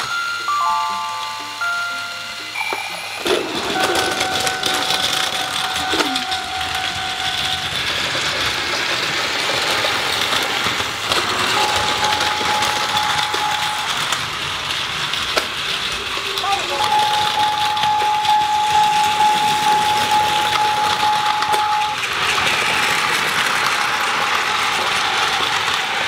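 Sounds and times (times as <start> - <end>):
electronic tones: 0.0 - 7.8, 11.5 - 14.0
toy train motor whirring: 0.0 - 26.0
train clattering over plastic track: 2.7 - 26.0.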